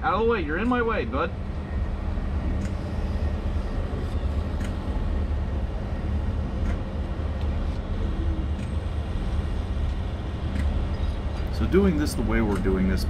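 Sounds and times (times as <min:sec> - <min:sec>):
diesel engine low rumble: 0:00.0 - 0:13.0
faint clicks: 0:02.6 - 0:02.8, 0:04.5 - 0:04.8, 0:06.6 - 0:07.8, 0:08.5 - 0:08.8, 0:09.8 - 0:11.6, 0:12.4 - 0:12.8.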